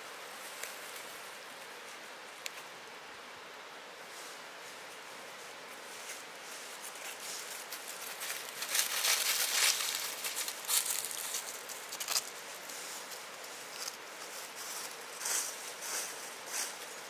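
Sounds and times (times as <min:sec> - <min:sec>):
dry leaves rustling: 0:04.0 - 0:17.0.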